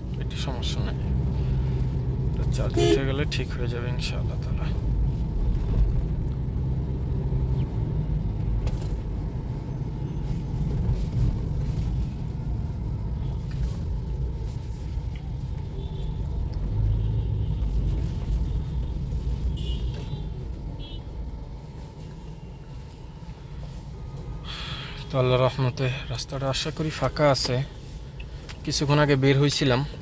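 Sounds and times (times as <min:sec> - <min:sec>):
car cabin road rumble: 0:00.0 - 0:30.0.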